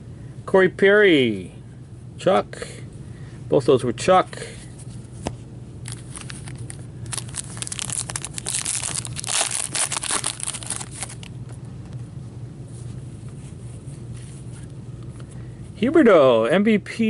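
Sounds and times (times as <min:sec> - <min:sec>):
crackling rustle: 0:05.8 - 0:11.4
foil wrapper tearing and crinkling: 0:05.9 - 0:11.3.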